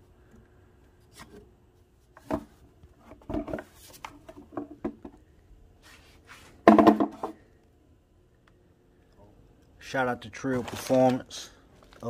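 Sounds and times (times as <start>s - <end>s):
hollow plastic knocks and rattles: 2.2s - 5.2s, 6.6s - 7.4s.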